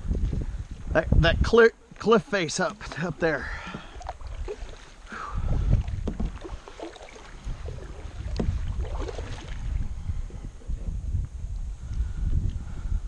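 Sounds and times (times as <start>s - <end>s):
wind rumble on microphone: 0.0s - 2.1s, 2.8s - 13.0s
kayak paddle splashing water: 2.4s - 9.9s.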